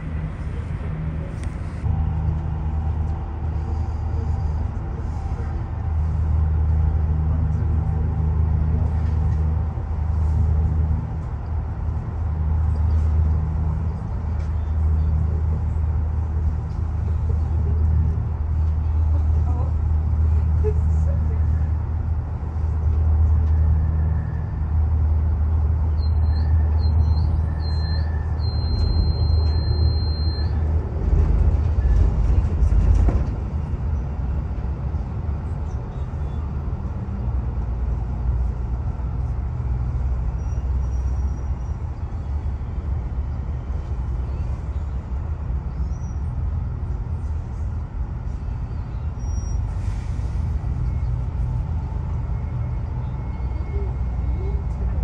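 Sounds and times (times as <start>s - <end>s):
large vehicle engine rumble: 0.0s - 55.0s
short high beeps: 26.1s - 30.6s.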